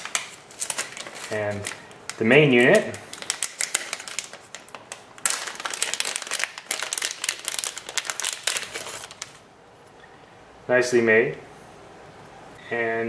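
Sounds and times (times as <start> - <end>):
plastic packaging crinkling: 0.0 - 9.4.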